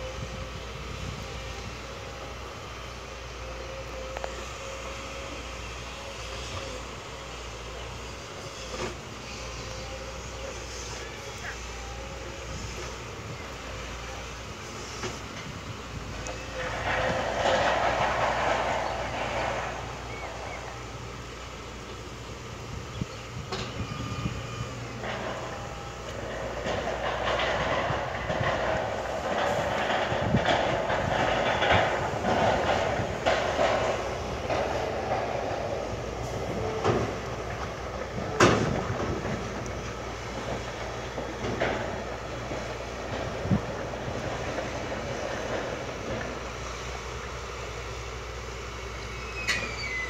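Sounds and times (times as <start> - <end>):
diesel engine running: 0.0 - 50.0
rough scraping rush: 13.7 - 21.8
metallic clanking and rattling: 16.2 - 21.4, 24.9 - 46.5.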